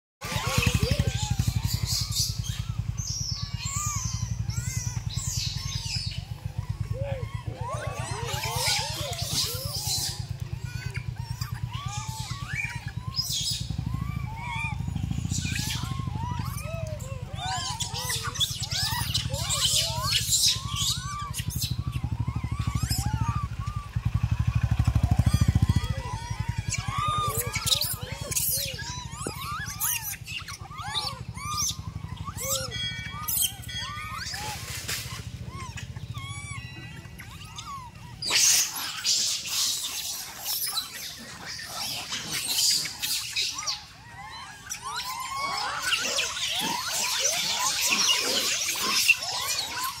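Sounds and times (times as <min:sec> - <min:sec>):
monkeys calling: 0:00.2 - 0:50.0
small engine idling: 0:00.2 - 0:50.0.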